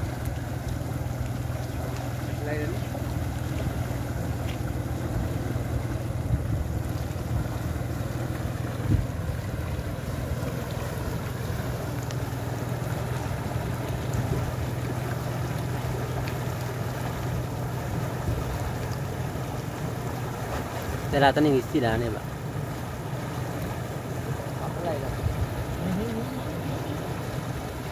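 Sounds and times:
wind rumble on microphone: 0.0 - 15.2, 15.8 - 21.4, 23.5 - 27.9
turbulent water pouring: 0.0 - 27.9.

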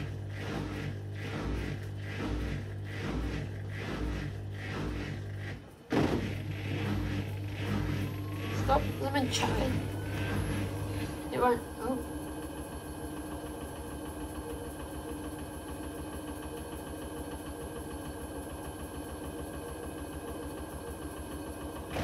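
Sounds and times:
washing machine spinning: 0.0 - 22.0.

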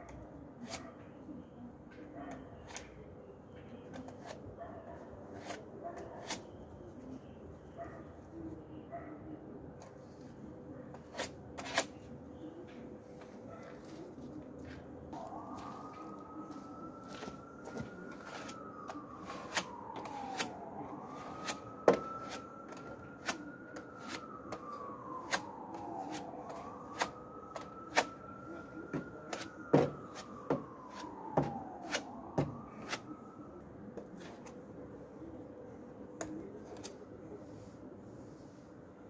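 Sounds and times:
siren wailing: 14.6 - 36.0.

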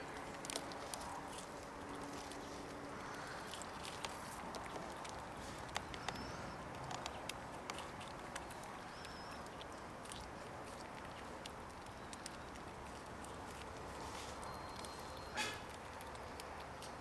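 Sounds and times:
squirrel gnawing corn: 0.0 - 17.0.

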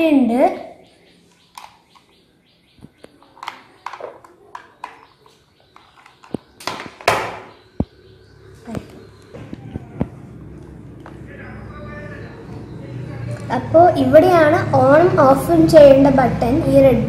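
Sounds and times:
plastic clicks and knocks: 2.8 - 7.9.

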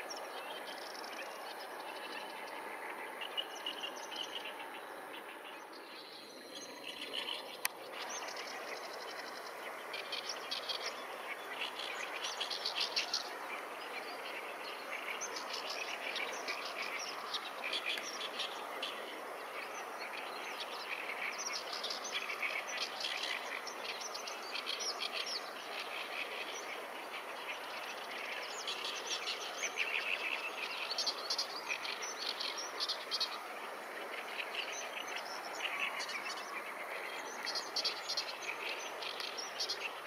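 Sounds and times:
songbirds singing and chirping: 0.0 - 40.0
steady background hiss: 0.0 - 40.0.

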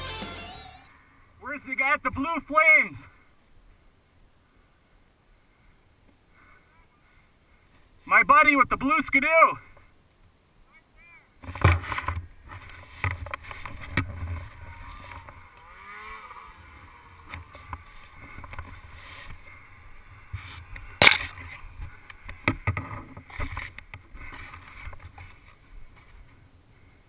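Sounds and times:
rustling of pine branches: 9.6 - 27.0.

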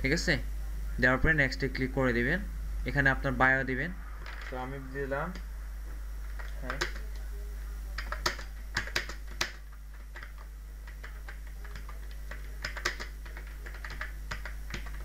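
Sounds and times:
low steady hum: 0.0 - 15.0
keyboard keys clicking: 8.0 - 15.0.

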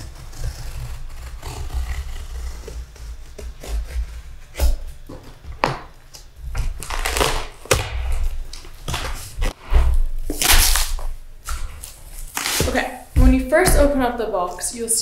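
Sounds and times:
blade scraping cardboard: 0.0 - 5.3, 6.6 - 13.0
blade cutting packing tape: 6.2 - 9.6, 10.3 - 12.9.

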